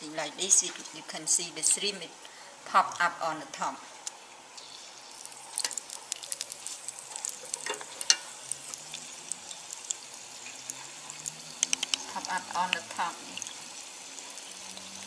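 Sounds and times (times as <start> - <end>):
oil sizzling and popping: 0.0 - 15.0.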